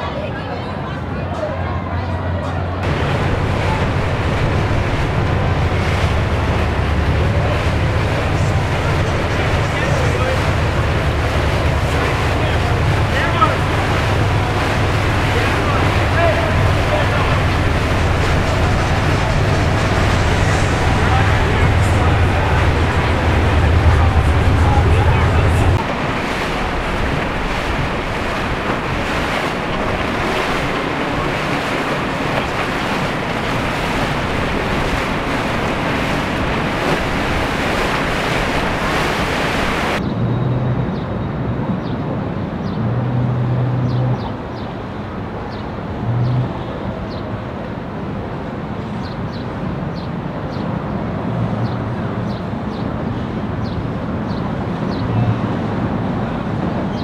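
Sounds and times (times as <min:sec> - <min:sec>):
surf breaking: 0:02.7 - 0:40.0
short low hums: 0:02.8 - 0:40.0
wind rushing: 0:02.8 - 0:40.0.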